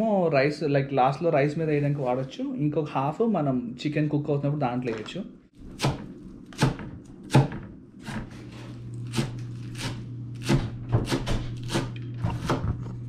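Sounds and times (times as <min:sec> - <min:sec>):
steady low hum: 0:05.4 - 0:13.0
knife chopping on cutting board: 0:05.6 - 0:12.8.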